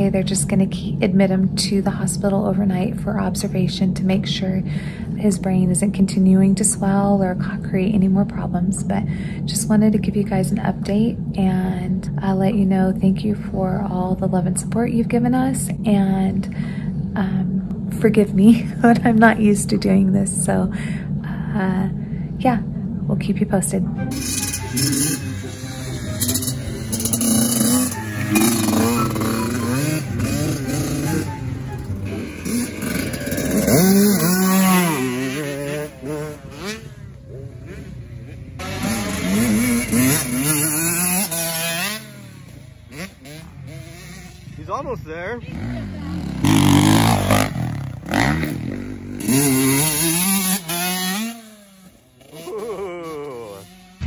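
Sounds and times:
dirt bike engines revving: 20.8 - 54.0.

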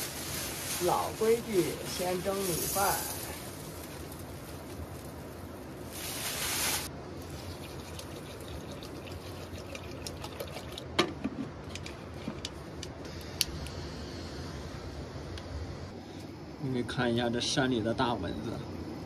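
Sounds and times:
water trickling into pot: 7.2 - 11.0.

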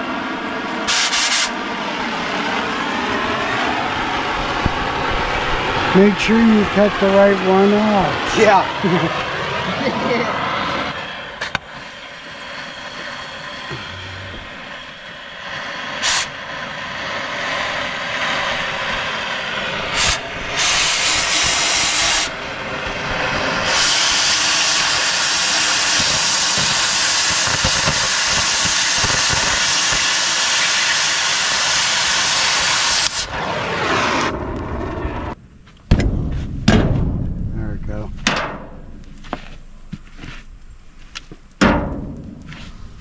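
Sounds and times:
loud hiss of metal cutting: 0.9 - 1.6, 11.6 - 22.4, 23.3 - 33.3.

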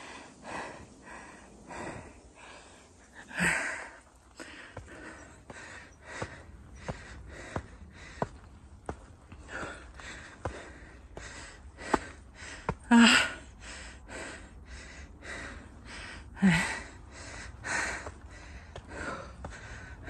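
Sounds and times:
person breathing hard: 0.0 - 20.0
footsteps on stone steps: 4.4 - 13.4, 16.5 - 20.0
person gasping: 9.4 - 20.0.

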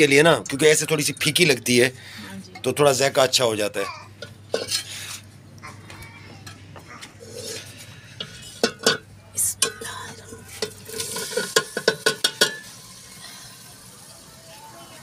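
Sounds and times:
knife scraping and tapping plate: 4.2 - 4.9
vegetables sizzling in oil: 10.5 - 15.0.

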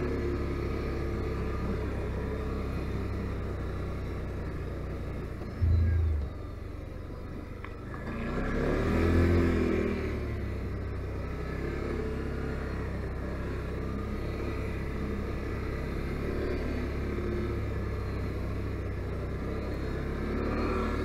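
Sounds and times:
loud low thump: 5.6 - 6.8.

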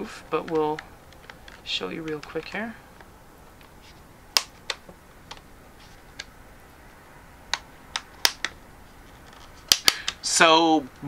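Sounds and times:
plastic clips clicking: 0.4 - 3.7, 4.4 - 5.5, 7.5 - 8.6, 9.2 - 10.3.

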